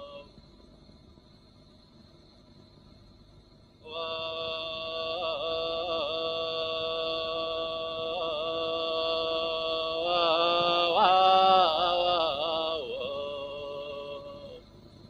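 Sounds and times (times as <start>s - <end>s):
chant-like melodic music: 3.9s - 14.6s.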